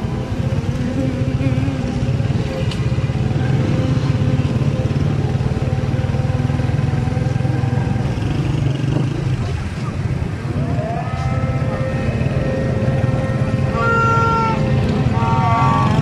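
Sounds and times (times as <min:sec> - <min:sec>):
small motorcycle engine running: 0:00.0 - 0:09.8
road traffic: 0:00.0 - 0:16.0.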